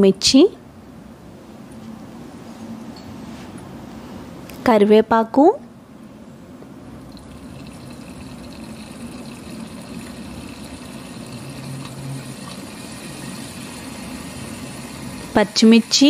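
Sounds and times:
spices sizzling in hot oil: 7.4s - 16.0s.

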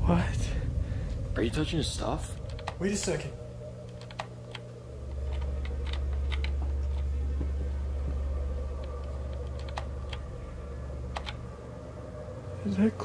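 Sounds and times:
low steady hum: 0.0s - 13.0s
computer keyboard clicks: 3.9s - 4.6s, 5.2s - 7.0s, 8.8s - 10.2s, 11.1s - 11.4s.

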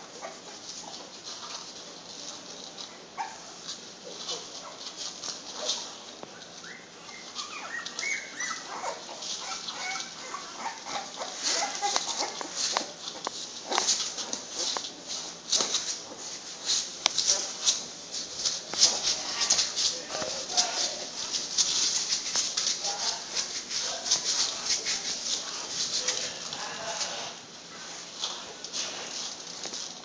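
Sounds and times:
puppies suckling clicks: 5.1s - 14.9s
puppies squeaking and whimpering: 6.4s - 14.7s.

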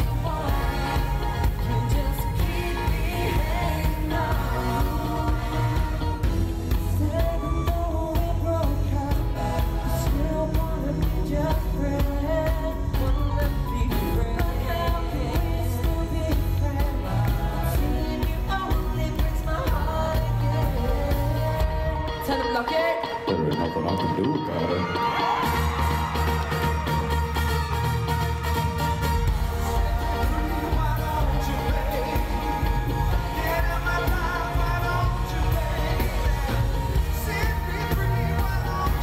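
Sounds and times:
male vocal group singing: 0.0s - 23.2s, 29.3s - 39.0s
band with drums and bass: 0.0s - 39.0s.

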